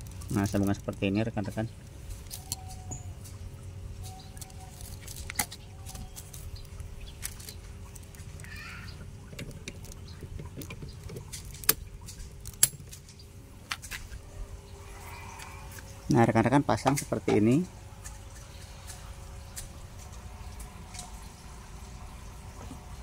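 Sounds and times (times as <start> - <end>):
metal sockets clicking and clinking: 9.3 - 13.0.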